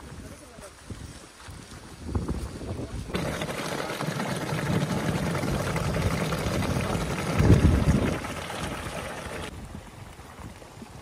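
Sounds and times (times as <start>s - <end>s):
running water: 3.1s - 11.0s.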